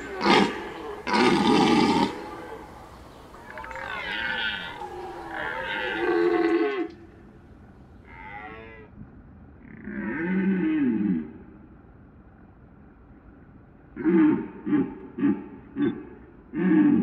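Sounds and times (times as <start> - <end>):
stag roaring: 0.0 - 7.2.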